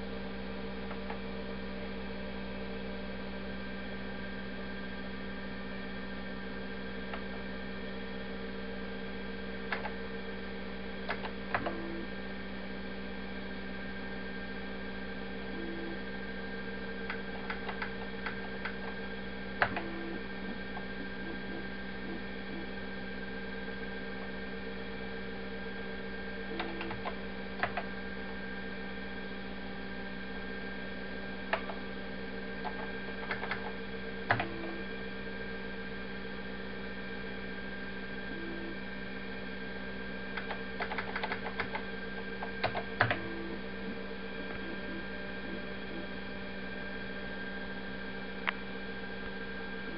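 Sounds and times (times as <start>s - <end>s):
steady electrical hum: 0.0s - 49.9s
keyboard key clicks: 32.6s - 33.7s, 40.4s - 41.8s.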